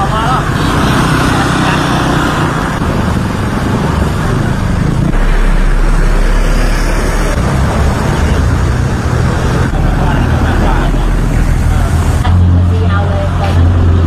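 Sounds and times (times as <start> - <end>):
vehicles passing on wet road: 0.0 - 14.0
deep low rumble: 2.8 - 12.9.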